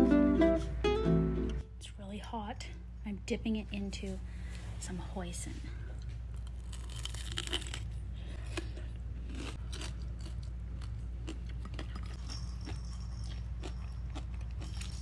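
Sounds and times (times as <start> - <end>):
steady low hum: 0.0 - 15.0
person chewing crispy food: 6.0 - 15.0.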